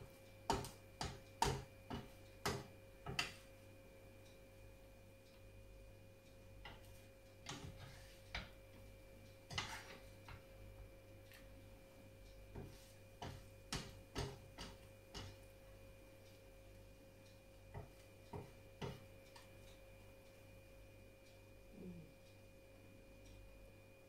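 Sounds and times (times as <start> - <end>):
faint steady hum: 0.0 - 24.0
spatula scraping frying pan: 7.4 - 8.4, 9.4 - 10.4.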